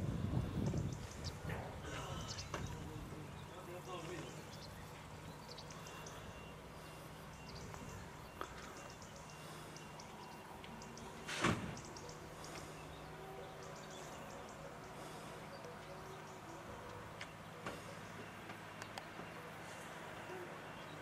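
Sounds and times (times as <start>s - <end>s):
faint high chirps and ticks: 4.0s - 11.2s.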